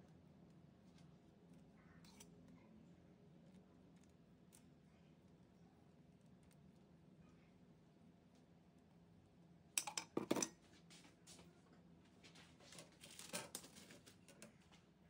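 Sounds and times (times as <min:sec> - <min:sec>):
utensils and dishes clattering: 0:09.8 - 0:10.6.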